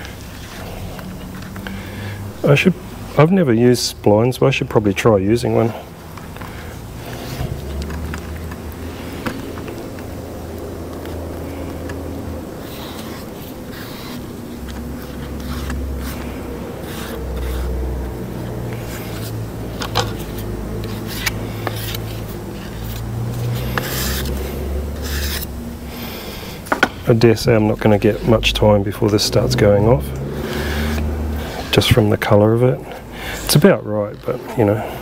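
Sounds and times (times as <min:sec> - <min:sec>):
low hum: 0:05.5 - 0:33.4
spreader scraping filler: 0:05.6 - 0:26.6.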